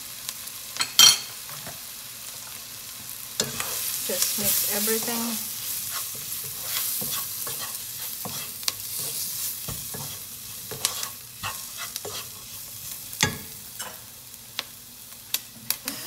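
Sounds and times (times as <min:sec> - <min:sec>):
onions sizzling in frying pan: 0:00.0 - 0:16.0
wooden spatula scraping pan: 0:03.4 - 0:14.0.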